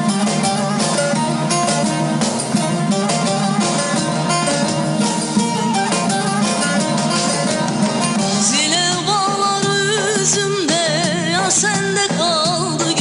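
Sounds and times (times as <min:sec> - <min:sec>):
folk instrumental music: 0:00.0 - 0:13.0
woman singing with vibrato: 0:08.3 - 0:13.0.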